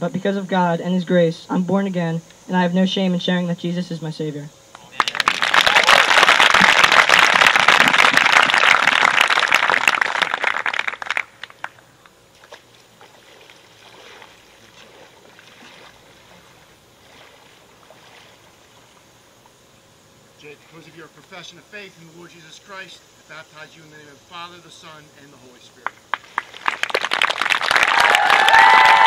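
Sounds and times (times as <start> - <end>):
crowd applauding: 5.0 - 11.8, 26.1 - 29.0.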